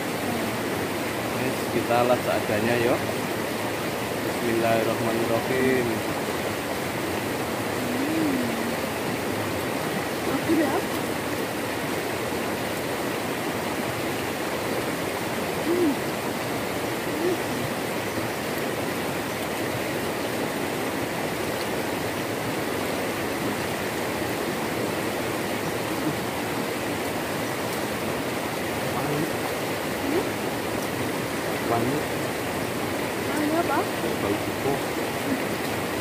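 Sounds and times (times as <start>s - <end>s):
river flowing over rocks: 0.0s - 36.0s.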